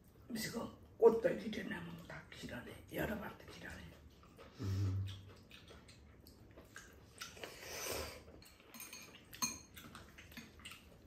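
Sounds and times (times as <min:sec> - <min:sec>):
noodle slurp: 0:07.1 - 0:08.3.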